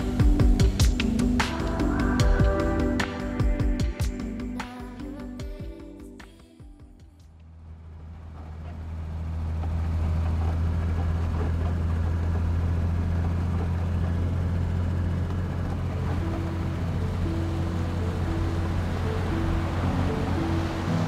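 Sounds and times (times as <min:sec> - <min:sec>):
vehicle driving on sand: 0:07.4 - 0:21.0.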